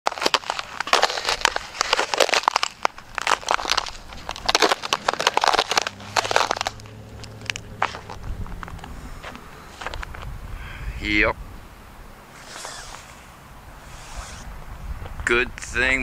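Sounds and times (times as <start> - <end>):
footsteps crunching on snow: 0.1 - 10.3.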